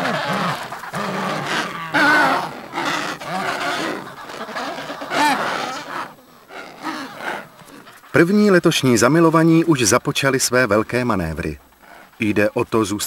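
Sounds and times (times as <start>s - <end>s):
penguins calling: 0.0s - 8.1s.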